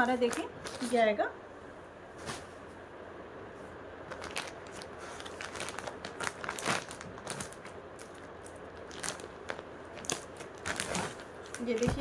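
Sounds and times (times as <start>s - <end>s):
plastic packet crinkling: 4.1s - 12.0s.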